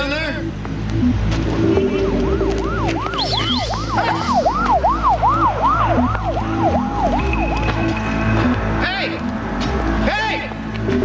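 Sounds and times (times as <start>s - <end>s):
siren yelping: 1.6s - 9.3s.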